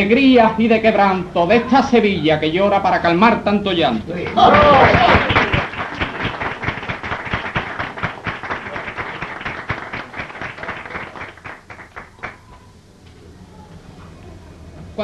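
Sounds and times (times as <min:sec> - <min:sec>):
audience applauding: 0:04.2 - 0:12.6.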